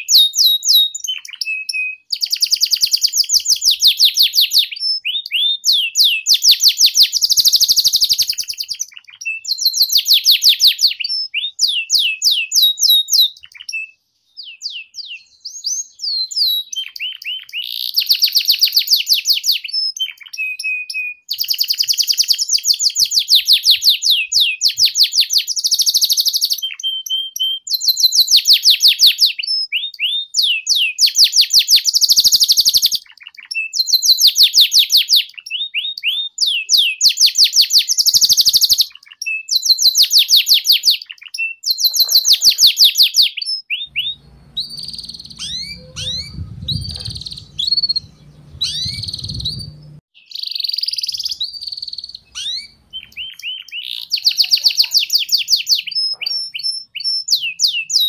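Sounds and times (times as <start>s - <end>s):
canary singing trills: 0.0s - 58.0s
low rumble: 44.1s - 50.0s.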